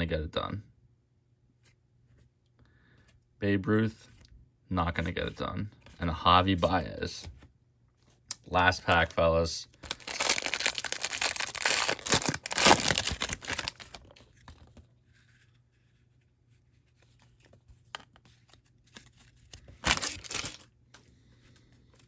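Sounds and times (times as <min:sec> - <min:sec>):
foil wrapper crinkling: 0:09.8 - 0:14.2, 0:19.8 - 0:20.7
rustle of cards and wrapper: 0:09.8 - 0:21.0.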